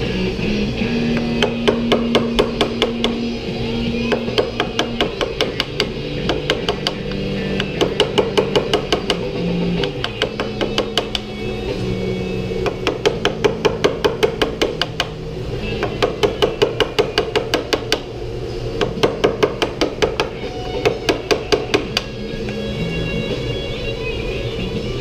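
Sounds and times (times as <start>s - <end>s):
background music: 0.0s - 25.0s
hammer tapping wood: 1.1s - 3.2s, 4.0s - 11.3s, 12.6s - 15.2s, 15.8s - 18.1s, 18.8s - 22.1s.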